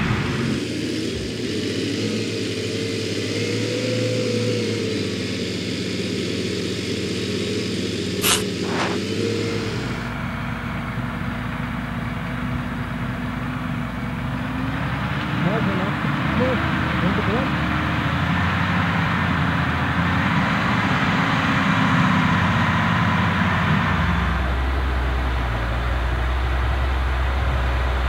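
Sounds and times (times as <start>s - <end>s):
tractor diesel engine running: 0.0s - 28.0s
short sharp clicks: 8.2s - 9.0s.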